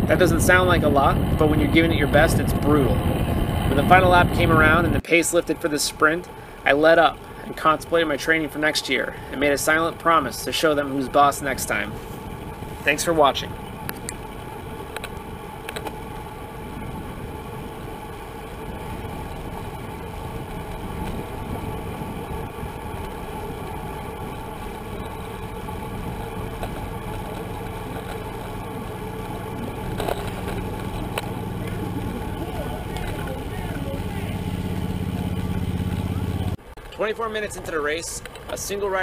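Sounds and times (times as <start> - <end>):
rushing wind: 0.0 - 36.9
bicycle road rumble: 0.0 - 39.0.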